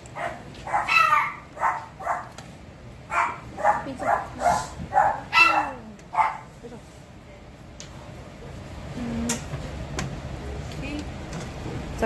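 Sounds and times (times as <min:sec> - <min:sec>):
dog yapping: 0:00.2 - 0:02.4, 0:03.1 - 0:06.5.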